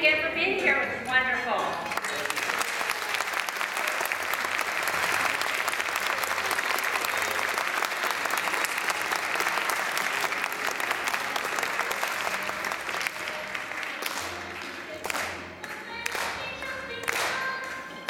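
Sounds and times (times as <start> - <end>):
audience applause: 1.9 - 15.3.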